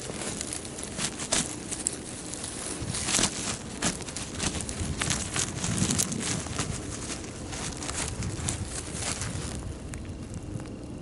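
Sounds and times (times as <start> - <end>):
hands digging in stony soil: 0.0 - 10.4.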